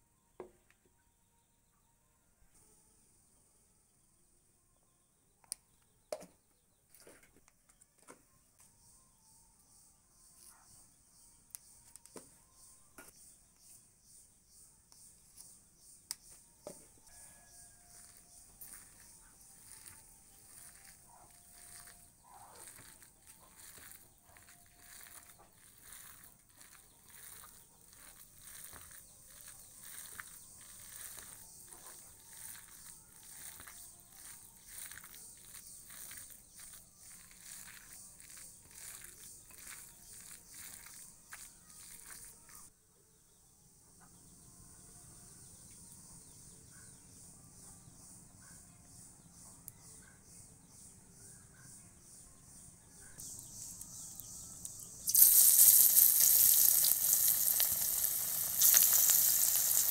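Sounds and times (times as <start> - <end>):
hand squelching wet mash: 17.9 - 42.4.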